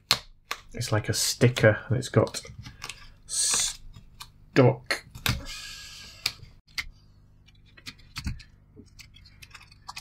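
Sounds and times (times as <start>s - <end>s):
hands clicking and tapping printer: 7.7s - 10.0s.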